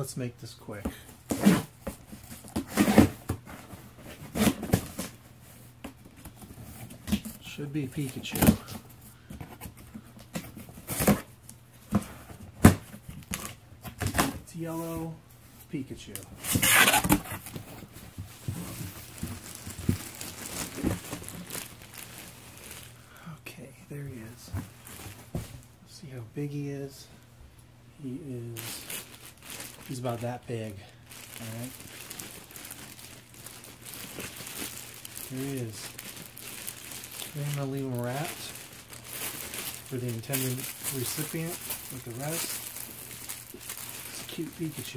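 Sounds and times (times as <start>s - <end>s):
plastic bag crinkling: 18.4s - 23.2s, 28.5s - 44.9s.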